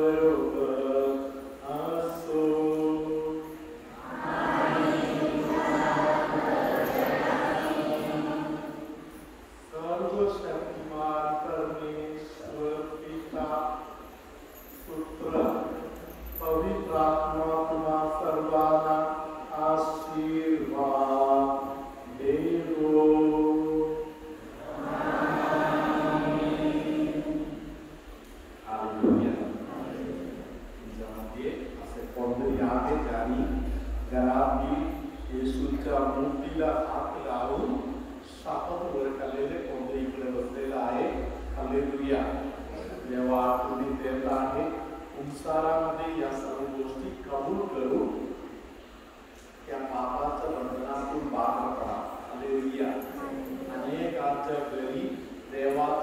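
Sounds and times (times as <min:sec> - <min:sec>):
man chanting: 0:00.0 - 0:08.9, 0:09.7 - 0:14.1, 0:14.9 - 0:27.6, 0:28.6 - 0:48.3
voices singing slow chant: 0:00.0 - 0:09.3, 0:17.2 - 0:28.1
congregation singing: 0:00.0 - 0:47.5, 0:49.7 - 0:56.0.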